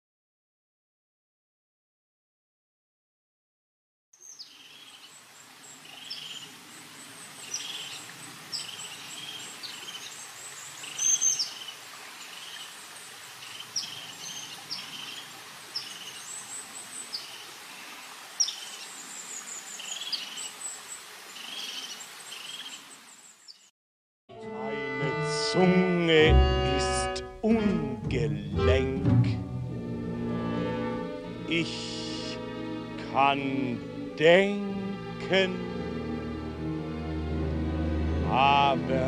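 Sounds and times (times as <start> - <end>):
birds chirping and calling: 4.2 - 17.5, 18.4 - 23.7.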